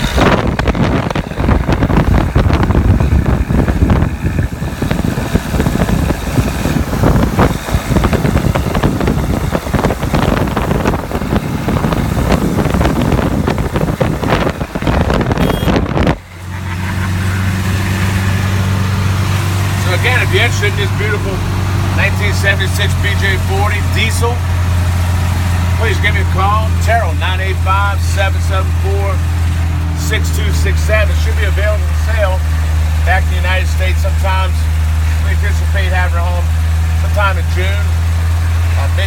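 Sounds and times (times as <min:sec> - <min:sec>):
wind buffeting microphone: 0:00.0 - 0:16.3
diesel engine running: 0:00.0 - 0:39.0.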